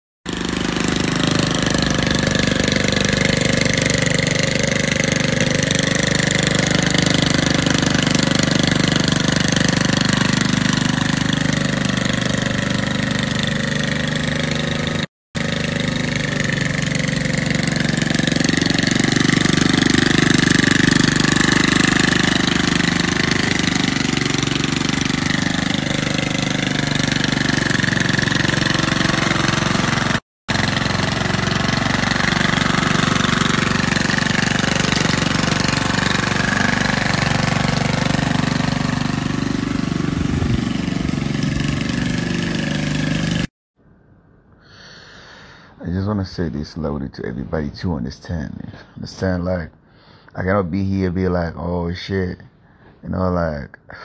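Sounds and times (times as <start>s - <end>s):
lawn mower engine running: 0.3s - 43.5s.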